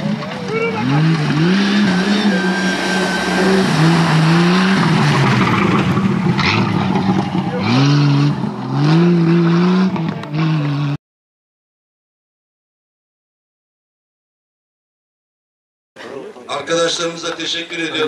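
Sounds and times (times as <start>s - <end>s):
tyres splashing through mud: 0.1s - 10.9s
engine revving hard: 0.4s - 11.0s.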